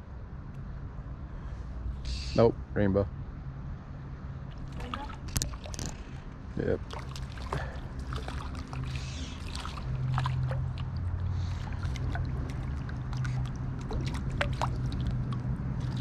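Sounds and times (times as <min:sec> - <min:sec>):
river water splashing and dripping: 0:04.4 - 0:16.0.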